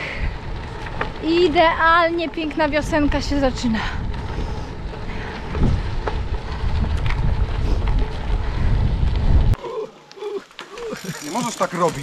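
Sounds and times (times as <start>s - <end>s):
wind buffeting microphone: 0.0s - 9.6s
bicycle clicking over gravel: 0.0s - 12.0s.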